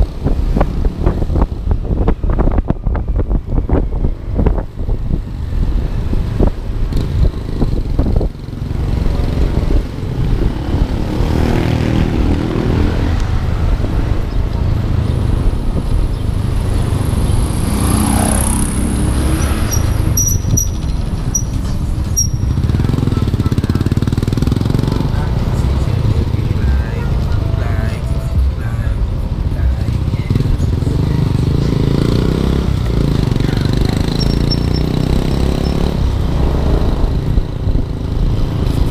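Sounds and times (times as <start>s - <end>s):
wind noise on microphone: 0.0s - 38.9s
scooter engine rumble: 13.0s - 31.9s.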